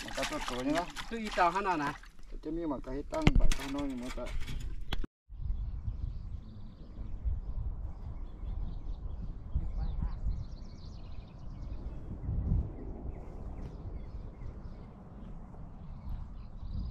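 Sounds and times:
wind rumbling on microphone: 3.2s - 16.9s
small birds chirping: 5.4s - 16.9s.

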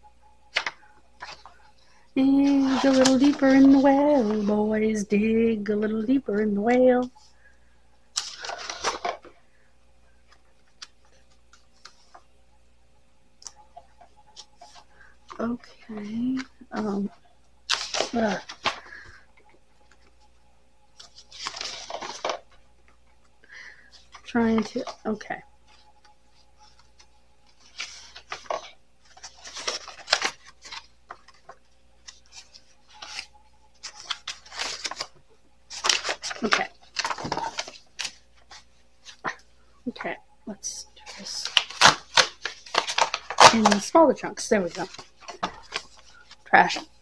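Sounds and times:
paper rustling and scraping: 0.5s - 4.9s, 8.2s - 9.4s, 13.6s - 19.2s, 21.0s - 22.6s, 23.9s - 39.4s, 41.0s - 47.0s.

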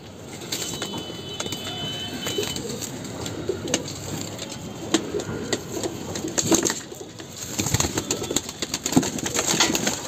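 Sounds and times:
pigeons cooing: 1.8s - 4.2s.

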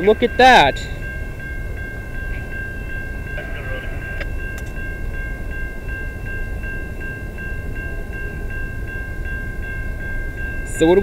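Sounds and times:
railway crossing bell ringing: 0.0s - 11.0s
low rumble: 0.9s - 6.3s.

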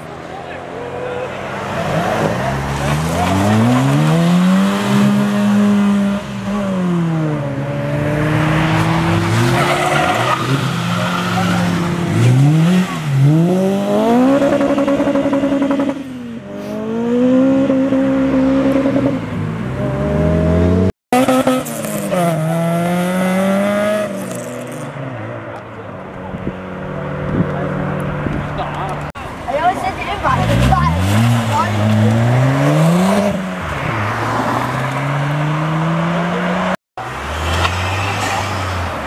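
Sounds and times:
car engines revving hard: 0.0s - 39.0s.

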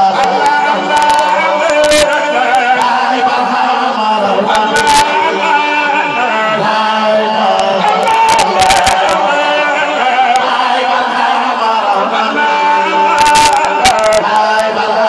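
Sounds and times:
crowd singing along: 0.0s - 15.0s
men chanting through microphone: 0.0s - 15.0s.

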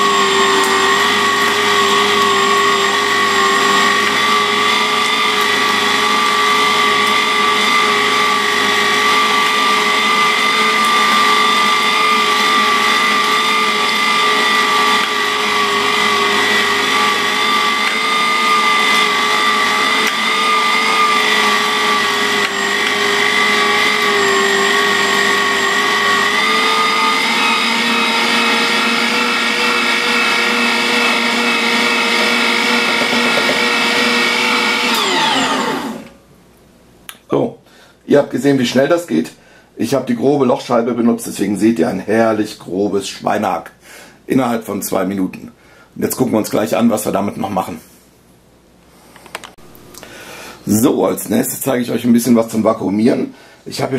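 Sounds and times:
meat grinder motor whining: 0.0s - 36.2s.

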